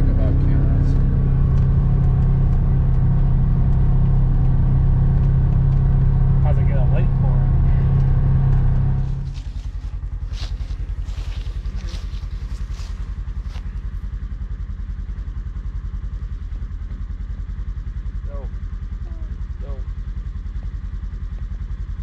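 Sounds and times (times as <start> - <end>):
vehicle engine idling: 0.0 - 22.0
rustling and crunching in grass: 9.3 - 14.0.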